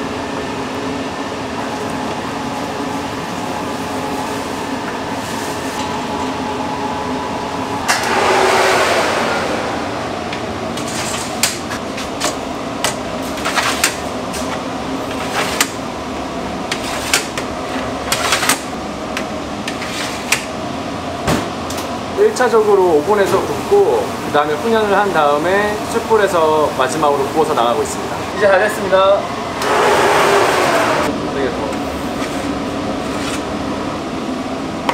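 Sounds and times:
ventilation fans humming: 0:00.0 - 0:34.9
loud rushing noise: 0:07.8 - 0:11.8.

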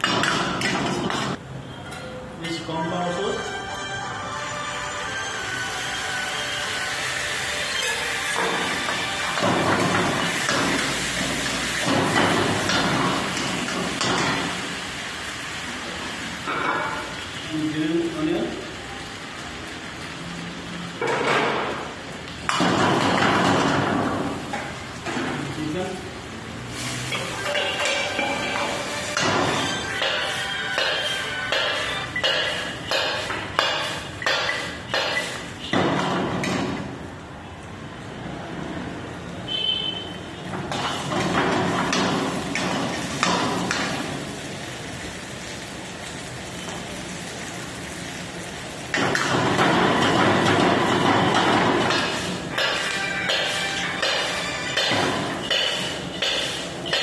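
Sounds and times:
food sizzling in a wok: 0:05.3 - 0:22.4, 0:23.7 - 0:35.6, 0:40.8 - 0:57.0.

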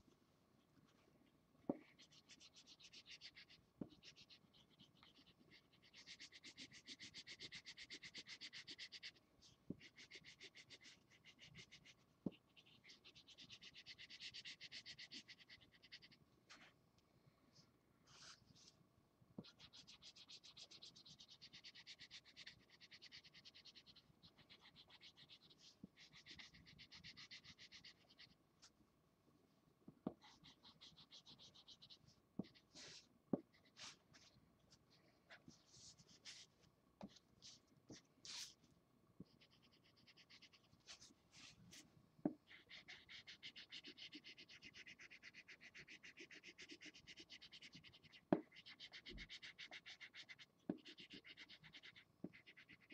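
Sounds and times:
marker scribbling on paper: 0:01.8 - 0:09.2, 0:30.1 - 0:34.3, 0:35.4 - 0:38.6, 0:42.5 - 0:52.9
sharp marker taps: 0:50.7 - 0:51.2.

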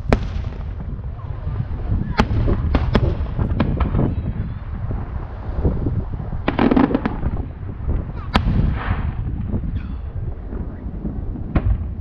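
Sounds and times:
fireworks bang: 0:00.0 - 0:01.0, 0:02.0 - 0:04.4, 0:06.4 - 0:09.7, 0:11.4 - 0:12.0
fireworks crackling: 0:00.0 - 0:12.0
low rumble: 0:00.0 - 0:12.0.

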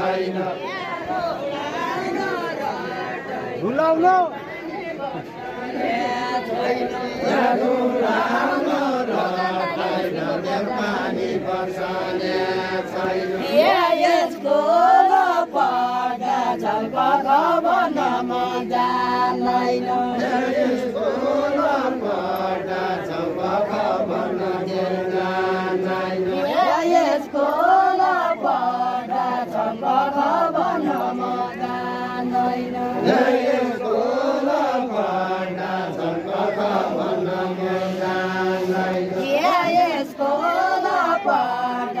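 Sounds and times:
group singing unaccompanied: 0:00.0 - 0:42.0.

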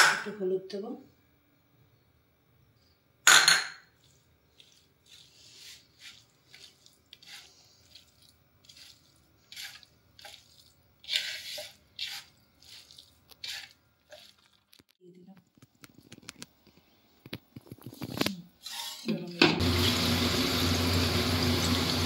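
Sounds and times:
bowl clattering on counter: 0:03.3 - 0:03.9
hand mixing fish wet squishing: 0:04.0 - 0:14.7.

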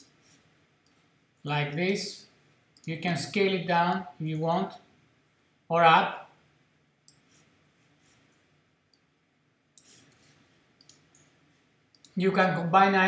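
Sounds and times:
computer mouse clicks: 0:09.8 - 0:12.2.

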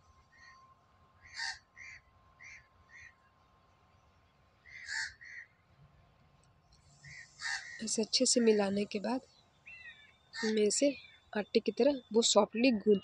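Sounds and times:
bird calls: 0:04.6 - 0:05.6, 0:07.0 - 0:08.0, 0:09.3 - 0:11.3.

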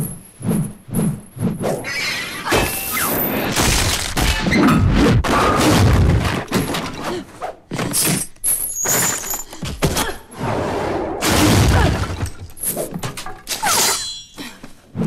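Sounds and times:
wood breaking: 0:03.5 - 0:04.6
metal chain clinking: 0:07.9 - 0:09.6.

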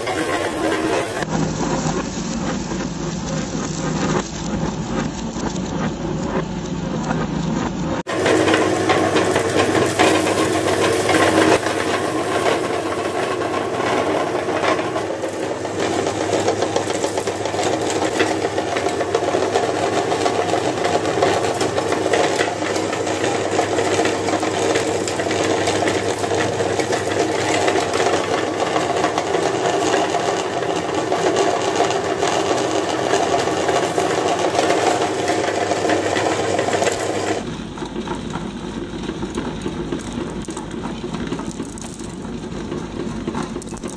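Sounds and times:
meat grinder motor humming: 0:00.0 - 0:04.2, 0:08.1 - 0:37.5
candies crackling in grinder: 0:00.0 - 0:05.6, 0:08.1 - 0:43.9.

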